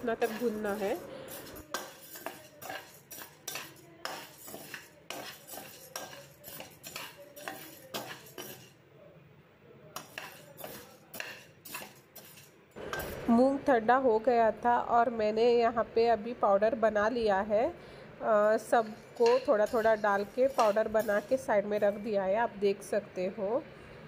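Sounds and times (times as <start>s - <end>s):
metal spatula scraping a pan: 0.0s - 8.8s, 10.0s - 13.4s, 18.5s - 22.1s.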